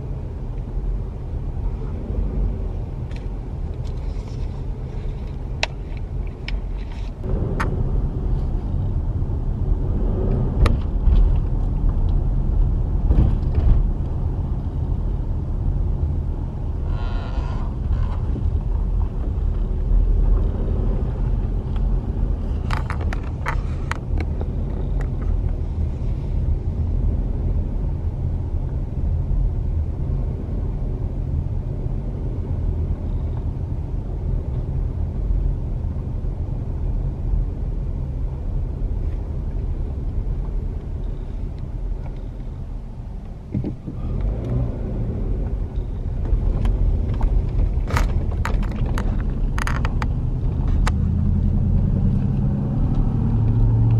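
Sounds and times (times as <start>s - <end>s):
car engine and tyres rumbling: 0.0s - 53.9s.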